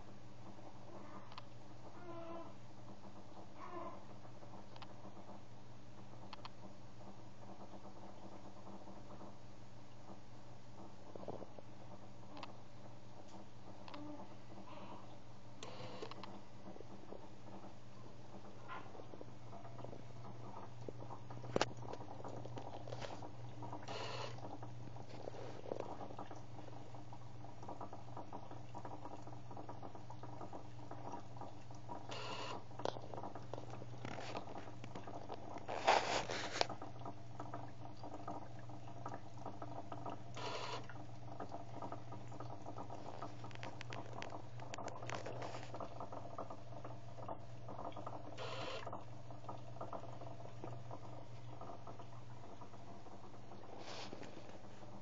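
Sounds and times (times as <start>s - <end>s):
dosing pump humming: 0.0s - 55.0s
soft liquid patter: 0.0s - 55.0s
short scrapes: 35.7s - 36.7s.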